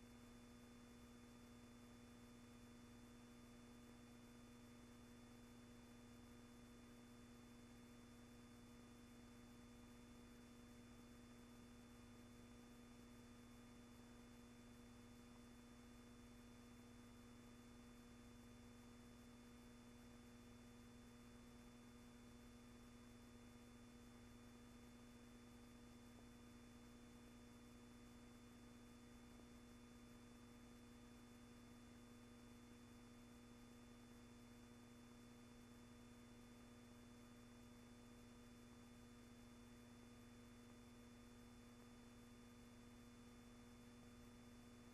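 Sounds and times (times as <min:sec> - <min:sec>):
faint hum with high whine: 0:00.0 - 0:44.9.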